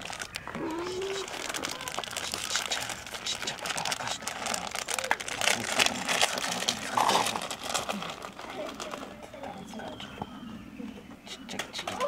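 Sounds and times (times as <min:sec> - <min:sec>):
dense crinkling and rustling: 0:00.0 - 0:00.6, 0:01.2 - 0:10.0
background voices: 0:00.0 - 0:12.0.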